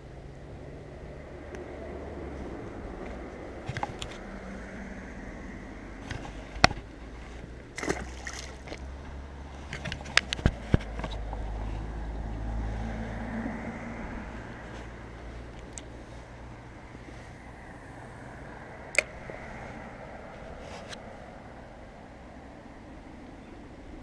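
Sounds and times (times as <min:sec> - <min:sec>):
knocks of handling fish and rod: 0:03.1 - 0:04.2, 0:06.0 - 0:11.8
fish splashing into water: 0:07.7 - 0:08.9.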